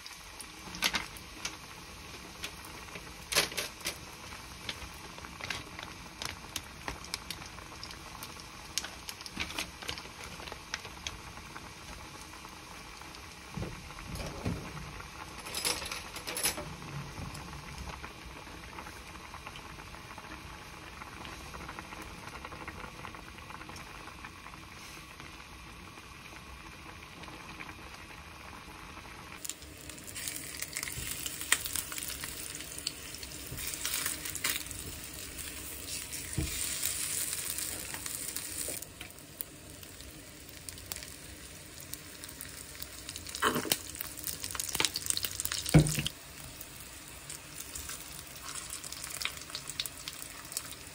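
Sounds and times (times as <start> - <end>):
broth boiling: 0.0 - 50.9
food sizzling in oil: 29.3 - 50.9.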